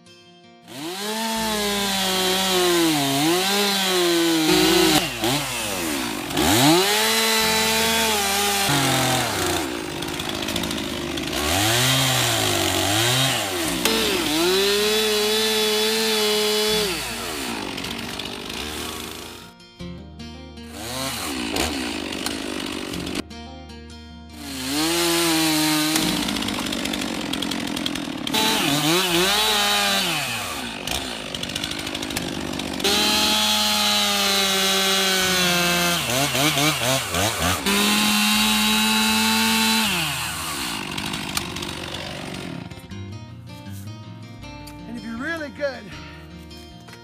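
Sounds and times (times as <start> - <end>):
chainsaw cutting log: 0.7 - 19.5, 20.6 - 23.2, 24.3 - 43.0.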